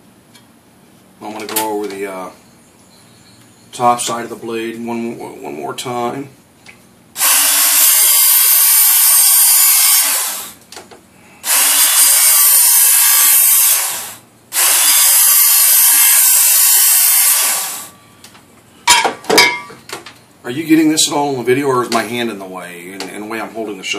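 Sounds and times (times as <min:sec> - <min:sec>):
belt sharpener grinding steel: 0:11.4 - 0:17.9.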